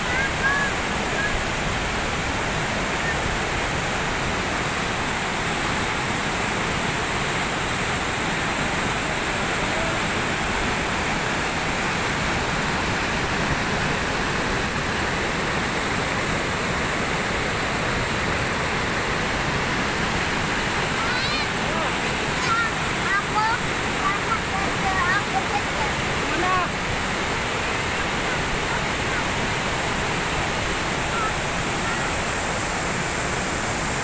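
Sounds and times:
waterfall and rapids rushing: 0:00.0 - 0:34.0.

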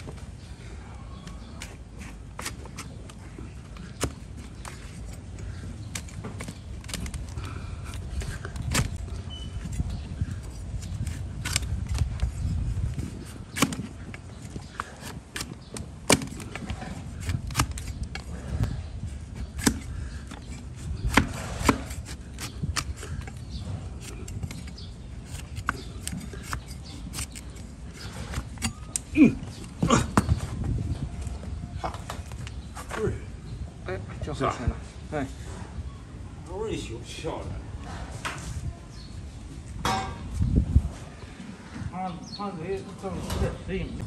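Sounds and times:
blade cutting hoof horn: 0:07.9 - 0:18.3, 0:19.4 - 0:29.1.

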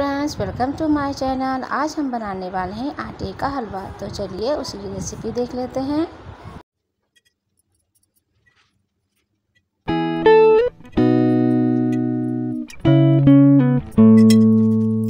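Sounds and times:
plucked string music: 0:09.9 - 0:15.0.

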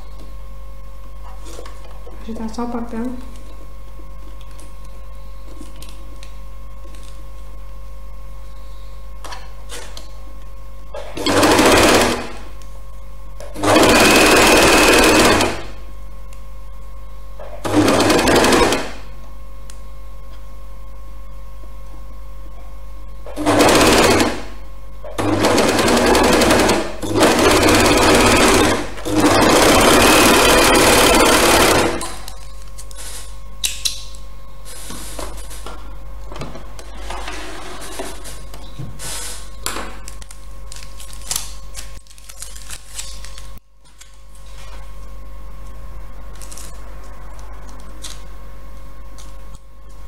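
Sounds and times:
sewing machine rattling: 0:11.0 - 0:12.5, 0:13.6 - 0:15.8, 0:17.6 - 0:19.0, 0:23.3 - 0:24.5, 0:25.2 - 0:32.3.

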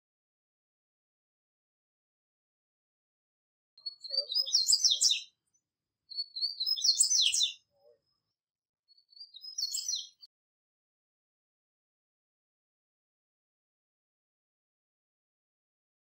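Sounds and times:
bird twittering song: 0:03.8 - 0:10.3.

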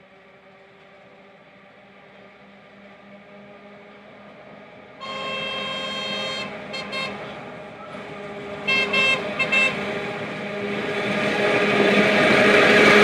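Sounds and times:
locomotive diesel engine running: 0:00.6 - 0:13.0
locomotive horn blasts and toots: 0:05.0 - 0:07.4, 0:08.6 - 0:10.0.

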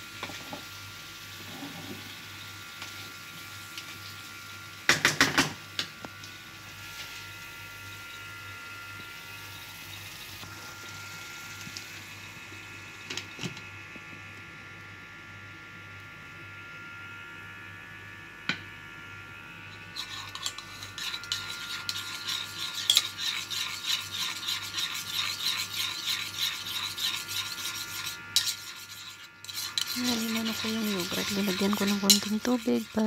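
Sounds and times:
spoon scraping plastic bowl: 0:19.8 - 0:33.0.

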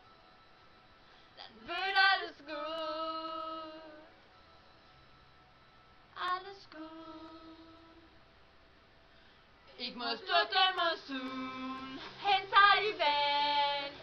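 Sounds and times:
woman singing wordless notes: 0:01.4 - 0:04.2, 0:06.2 - 0:08.2, 0:09.7 - 0:14.0.

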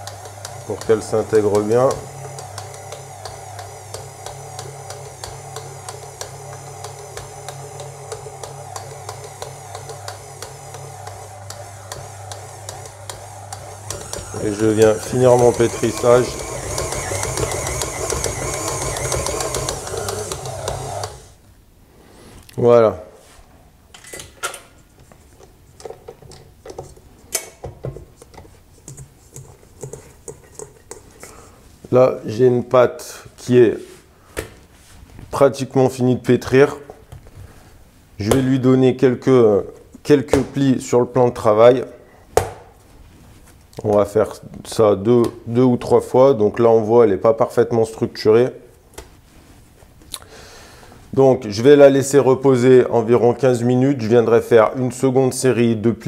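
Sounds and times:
dough hook ticking: 0:00.0 - 0:21.3
stand mixer motor hum: 0:00.0 - 0:21.4.

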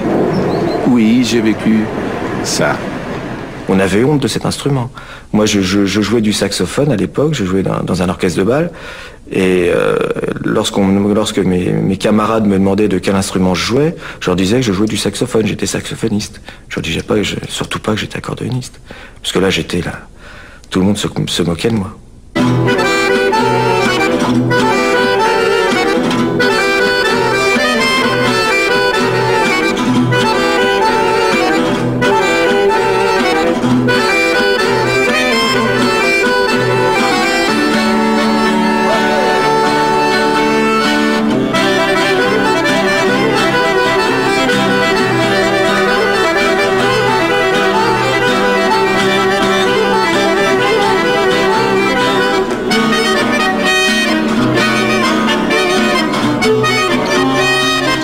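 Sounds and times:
acoustic guitar accompaniment: 0:00.0 - 0:58.0
button accordion playing: 0:22.4 - 0:58.0.

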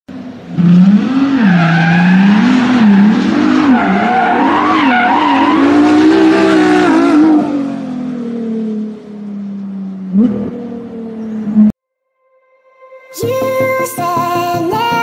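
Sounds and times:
sports car engine revving: 0:00.1 - 0:04.6, 0:05.2 - 0:11.7.

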